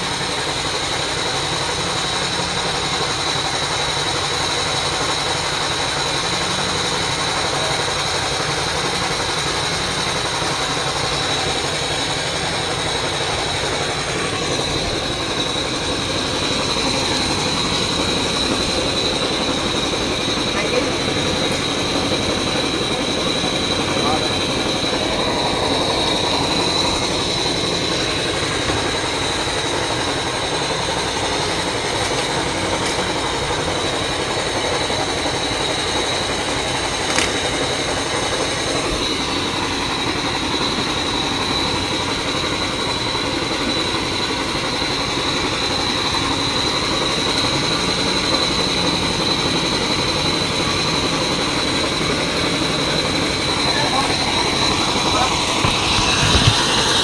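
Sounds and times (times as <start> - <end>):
high-pitched whine: 0.0 - 57.0
mechanical equipment running: 0.0 - 57.0
sharp click: 37.1 - 37.5.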